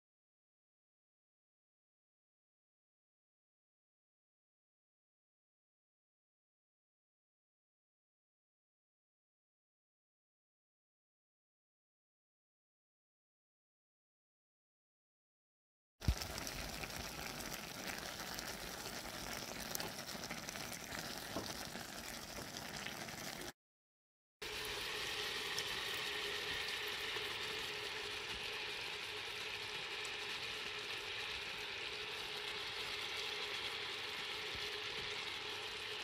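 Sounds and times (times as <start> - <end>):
fruit simmering and bubbling: 16.0 - 23.6, 24.4 - 36.0.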